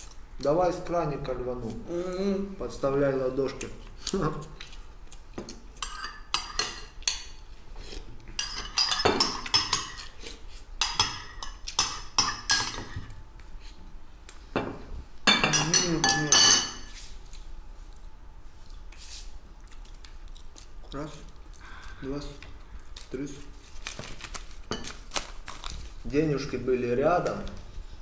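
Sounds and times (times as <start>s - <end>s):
spoons clinking on ceramic bowls: 5.8s - 7.4s, 8.4s - 10.1s, 10.8s - 13.0s, 15.3s - 16.9s.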